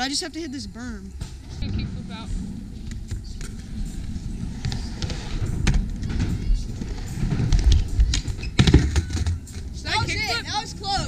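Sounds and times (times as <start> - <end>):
skateboard wheels rolling on ramp: 1.2 - 11.0.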